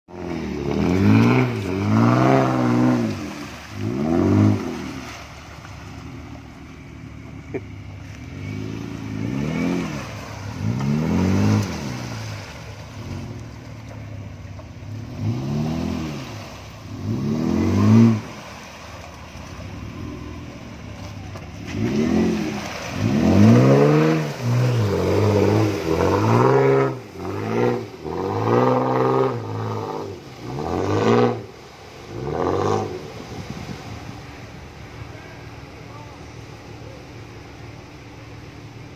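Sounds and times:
engine revving hard: 0:00.1 - 0:05.2, 0:08.3 - 0:13.4, 0:14.9 - 0:18.5, 0:21.6 - 0:34.0.

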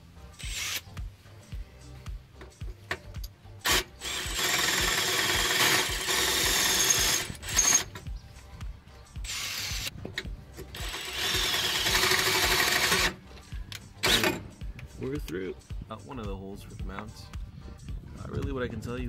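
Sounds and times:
drill cutting through metal: 0:00.4 - 0:00.8, 0:03.6 - 0:07.9, 0:09.2 - 0:09.9, 0:10.7 - 0:13.2, 0:14.0 - 0:14.4.

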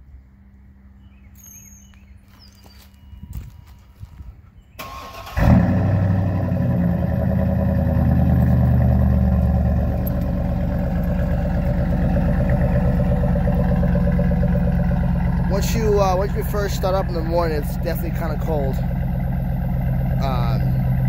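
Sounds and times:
pickup engine idling: 0:04.8 - 0:21.0.

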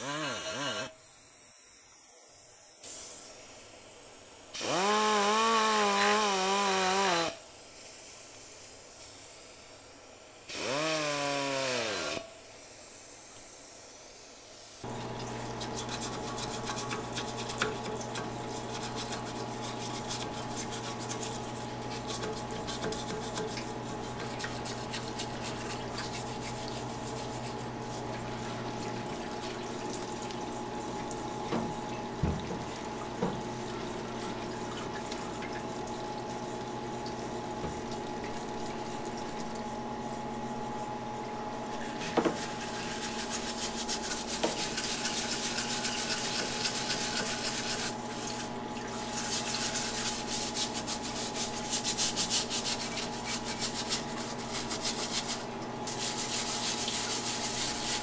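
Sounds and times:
pneumatic die grinder whining: 0:00.0 - 0:01.0, 0:04.6 - 0:07.4, 0:10.5 - 0:12.3
pump humming: 0:00.0 - 0:01.1, 0:04.5 - 0:07.6, 0:10.5 - 0:12.4, 0:14.8 - 0:58.0
solvent splashing: 0:14.9 - 0:39.8.

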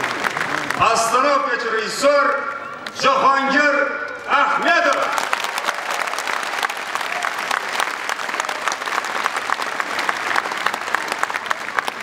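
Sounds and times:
audience applauding: 0:00.0 - 0:01.5, 0:04.5 - 0:12.0.

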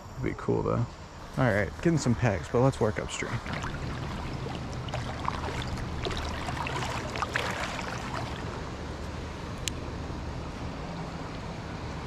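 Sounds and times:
creek water rippling: 0:01.1 - 0:10.9
splashes from wading: 0:02.0 - 0:08.8.

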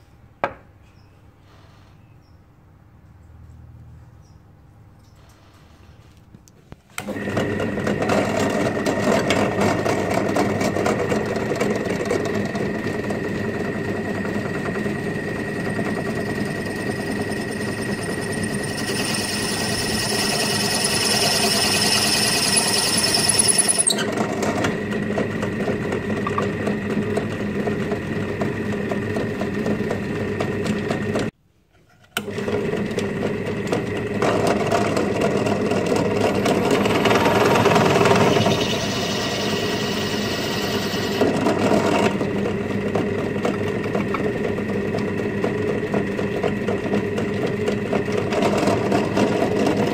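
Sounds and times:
drill press motor whining: 0:07.0 - 0:31.3, 0:32.2 - 0:49.9
hissing scrape of bit cutting: 0:37.1 - 0:41.3.

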